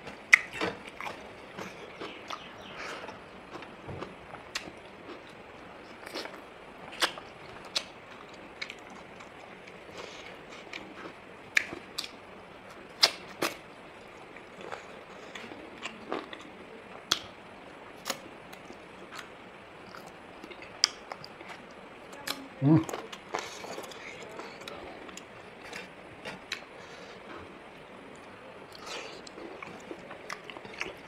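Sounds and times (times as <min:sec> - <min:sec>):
person chewing with mouth smacks: 0:00.3 - 0:05.4.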